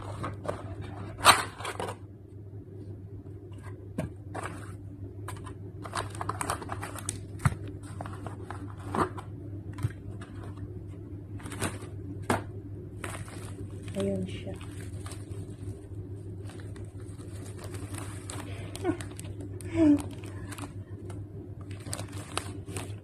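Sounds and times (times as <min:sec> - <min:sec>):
steady low hum: 0:00.0 - 0:23.0
cardboard box rustling: 0:05.4 - 0:10.6.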